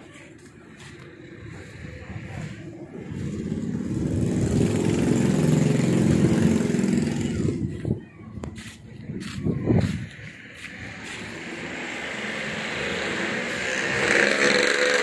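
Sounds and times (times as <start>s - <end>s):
vehicle engine running: 0.0s - 8.0s.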